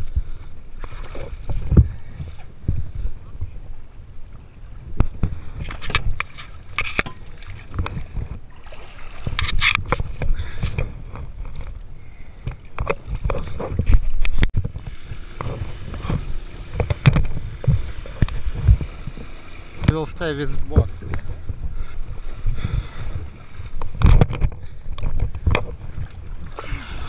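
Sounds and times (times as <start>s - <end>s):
water splashing: 5.1s - 10.8s, 12.8s - 22.0s.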